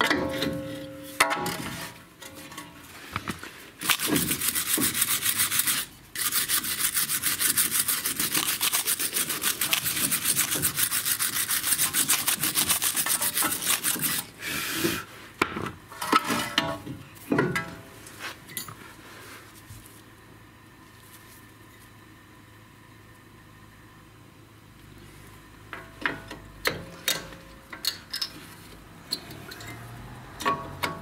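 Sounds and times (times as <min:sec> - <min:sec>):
metallic knocks and scrapes: 0:00.0 - 0:02.9, 0:15.9 - 0:17.9, 0:25.8 - 0:31.0
wire brush scrubbing metal: 0:03.8 - 0:14.4.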